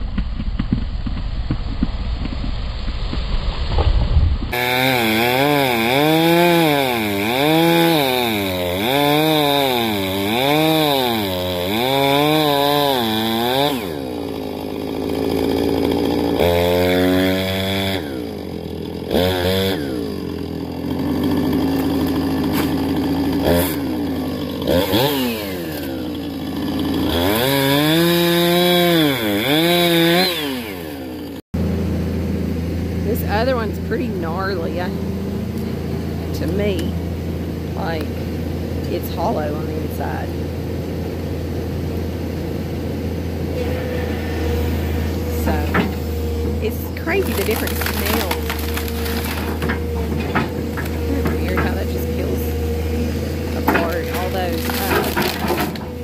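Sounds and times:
chainsaw cutting wood: 0.0 - 56.0
chainsaw revving: 4.5 - 56.0.

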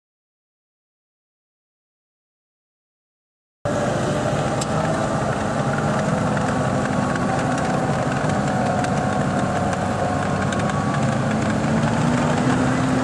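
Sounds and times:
snowcat engine running: 3.7 - 13.0.

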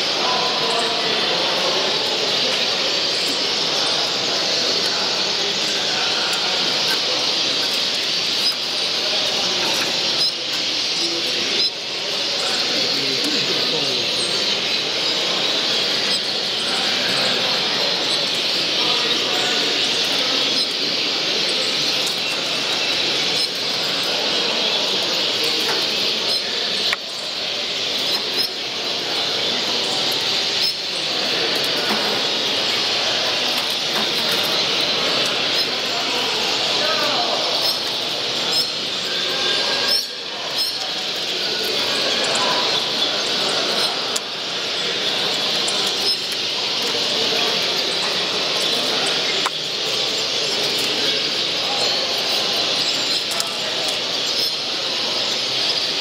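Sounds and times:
caged songbirds chirping: 0.0 - 56.0.

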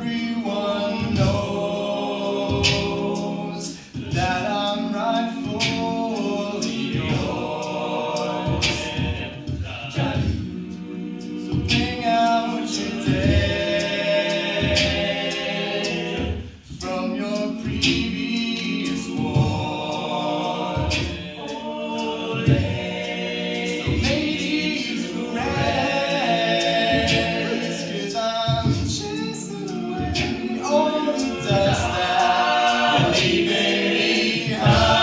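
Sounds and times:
male a cappella singing: 0.0 - 35.0.

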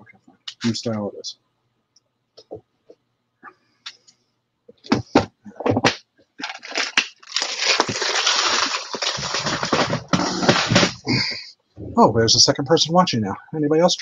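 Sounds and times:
rattle of plastic pieces: 5.7 - 11.0.

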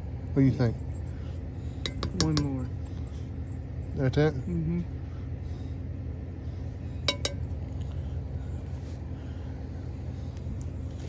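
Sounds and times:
steady low rumble: 0.0 - 11.0
metal spoon clinking on pot: 1.8 - 2.6, 7.1 - 7.5.

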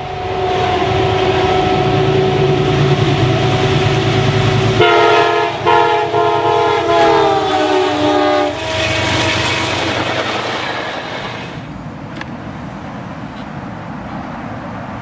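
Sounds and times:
locomotive horn blowing: 0.0 - 11.6
locomotive rumble: 0.0 - 14.5
train wheels on rails: 0.0 - 15.0.

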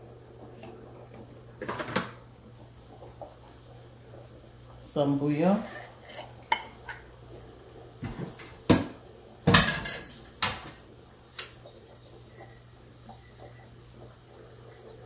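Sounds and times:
cookware knocking and clinking: 9.5 - 10.7.

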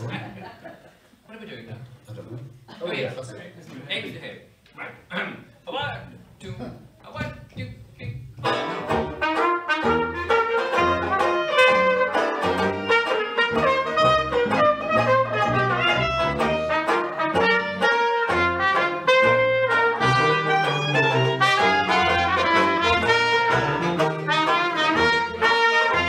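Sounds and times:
bass saxophone: 8.4 - 26.0
strummed banjo: 8.4 - 26.0
clarinet: 8.5 - 26.0
trumpet: 8.5 - 26.0.

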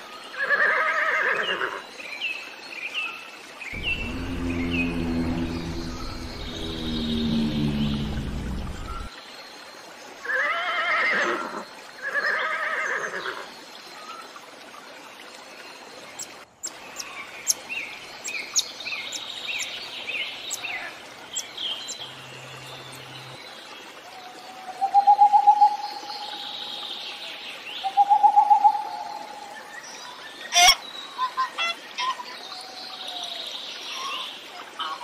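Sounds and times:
trilling call: 3.8 - 9.1.

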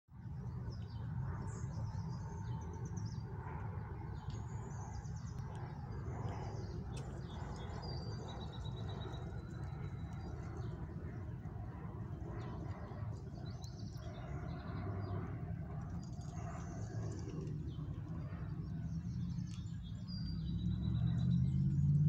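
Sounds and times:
songbirds chirping: 0.2 - 22.0
steady low rumble: 0.2 - 22.0.

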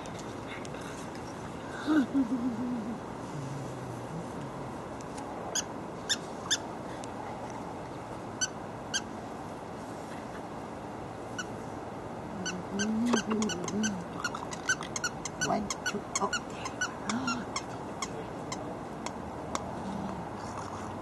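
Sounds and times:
puppies squeaking: 12.4 - 19.2.

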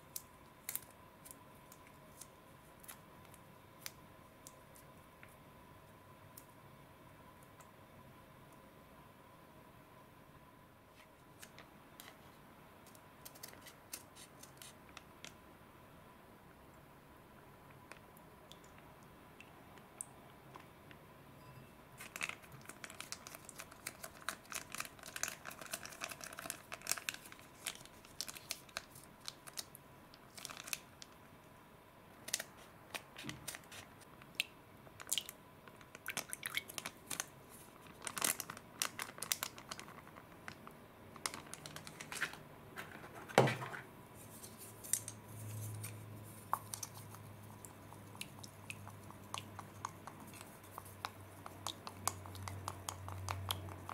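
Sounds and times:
foil sachet crinkling: 22.0 - 29.7, 30.3 - 31.1, 35.8 - 42.4
chopsticks stirring slime in bowl: 44.2 - 53.9.

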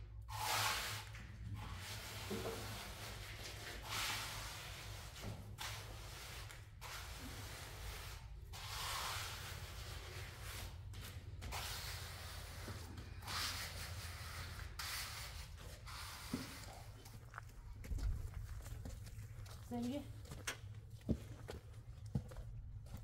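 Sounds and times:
rough rubbing strokes: 1.6 - 17.0.

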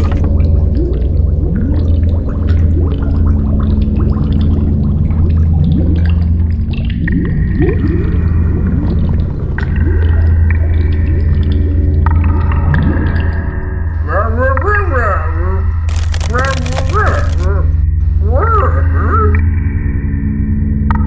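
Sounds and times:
low hum: 0.0 - 21.0
small clicks: 15.9 - 17.5.

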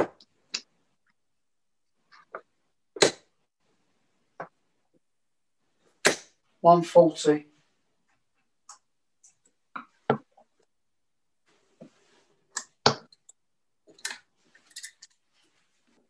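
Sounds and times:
darts knocking and clicking: 8.7 - 10.4, 12.5 - 14.3.

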